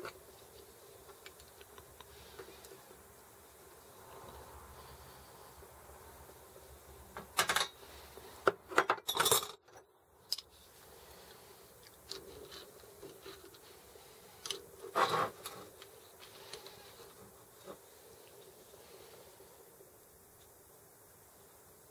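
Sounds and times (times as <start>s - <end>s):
metal parts and tools clinking: 7.4s - 7.8s, 8.7s - 10.5s.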